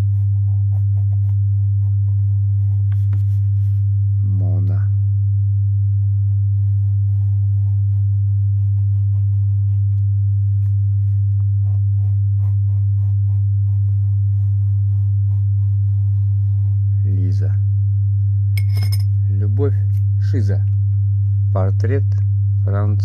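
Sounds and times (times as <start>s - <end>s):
pen scratching on paper: 0.0s - 3.7s, 11.6s - 16.8s
loud steady low hum: 0.0s - 23.0s.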